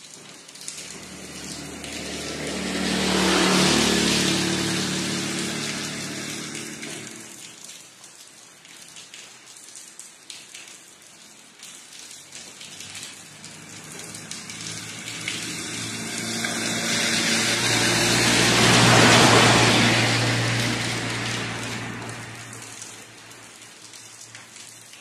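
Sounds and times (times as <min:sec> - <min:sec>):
vehicle on wet road: 0:00.0 - 0:09.2, 0:10.3 - 0:25.0
rain drips: 0:00.0 - 0:25.0
steady rain: 0:00.0 - 0:25.0.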